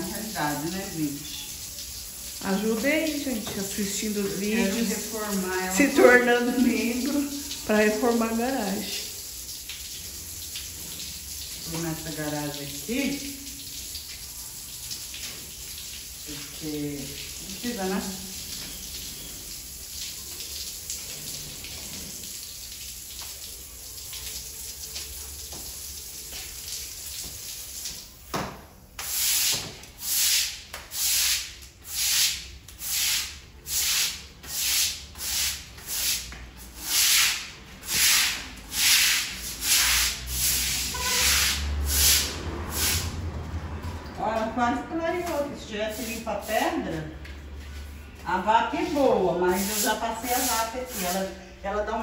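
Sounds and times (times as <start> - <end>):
hose water running onto tiles: 0.0 - 52.0
scrub brush scrubbing tiles: 29.0 - 43.5, 45.2 - 51.3.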